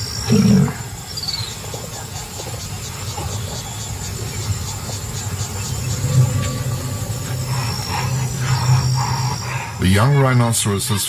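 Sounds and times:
crickets chirping: 0.0s - 11.0s
low background rumble: 4.3s - 9.8s.

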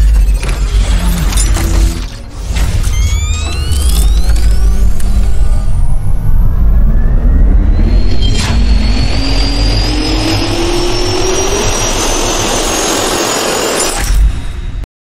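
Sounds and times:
sharp hit: 0.0s - 6.5s
jet turbine spooling up: 0.9s - 14.0s.

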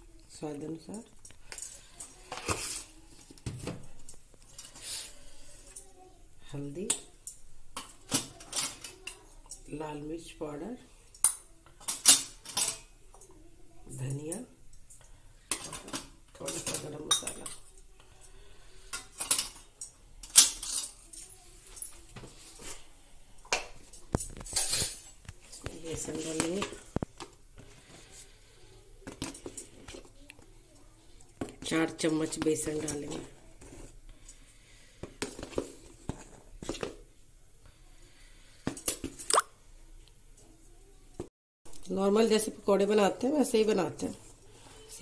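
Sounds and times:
steel spoon clinking on metal tins: 14.2s - 22.0s.

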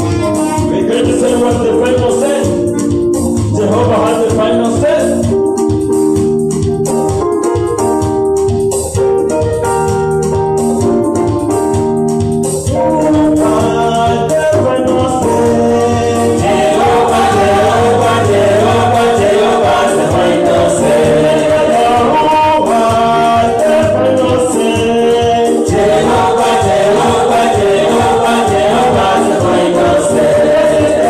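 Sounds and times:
held keyboard chords: 0.0s - 31.0s
steady percussion beat: 0.0s - 31.0s
people singing: 13.1s - 31.0s.

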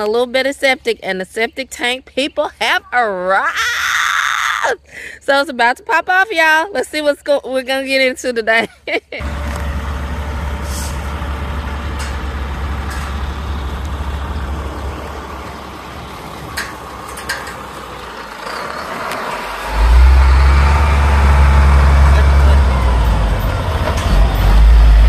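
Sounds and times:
diesel truck engine rumbling: 7.9s - 25.0s.

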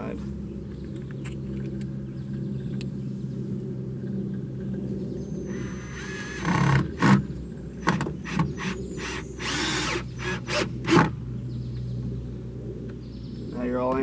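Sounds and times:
cordless drill driving a screw: 5.5s - 7.2s, 7.8s - 11.1s.

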